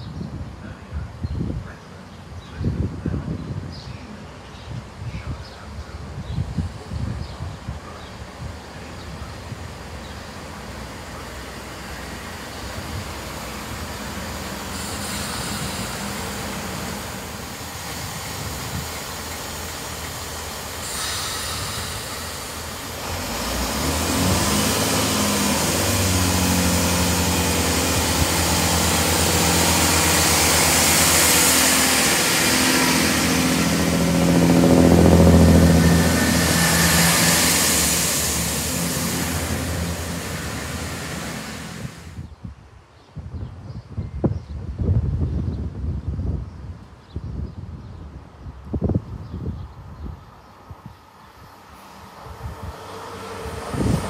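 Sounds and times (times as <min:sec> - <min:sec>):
train engines droning: 0:03.6 - 0:42.3, 0:49.7 - 0:54.0
train wheels rushing on rails: 0:06.4 - 0:42.3, 0:51.6 - 0:54.0.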